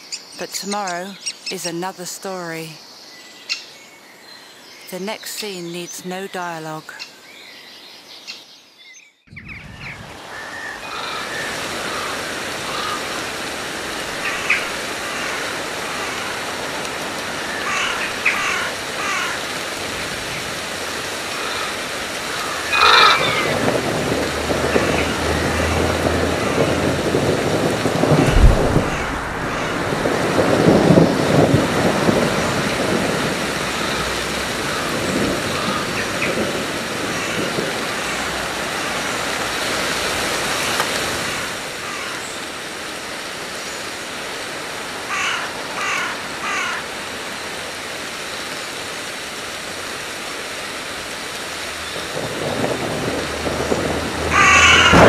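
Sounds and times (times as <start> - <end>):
bird calls: 7.0 - 13.5
wind rushing: 9.3 - 12.3, 26.1 - 33.0
rumbling wind gusts: 9.3 - 41.9, 49.6 - 55.0.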